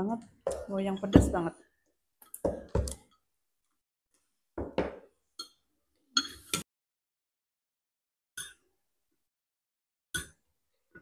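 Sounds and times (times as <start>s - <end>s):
spoons clinking on ceramic bowls: 6.2s - 6.6s.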